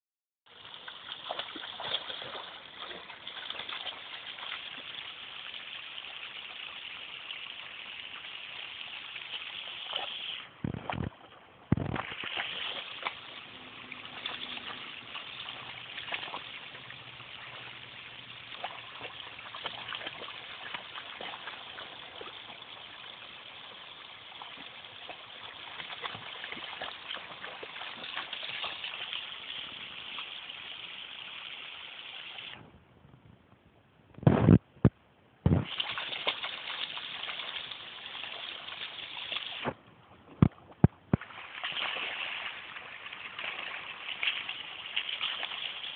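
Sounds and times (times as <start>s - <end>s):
creek water over rocks: 0.5s - 32.7s, 35.5s - 45.9s
dog splashing in water: 0.7s - 5.0s, 9.2s - 30.3s, 35.6s - 39.7s, 40.4s - 45.9s.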